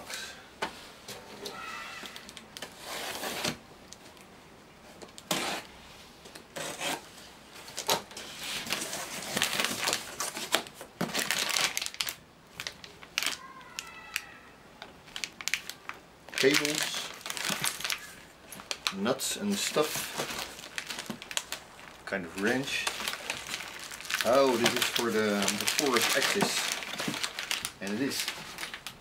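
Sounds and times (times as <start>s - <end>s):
plastic wrap rustling: 6.6s - 14.2s, 15.0s - 29.0s
cardboard rustling: 19.5s - 29.0s.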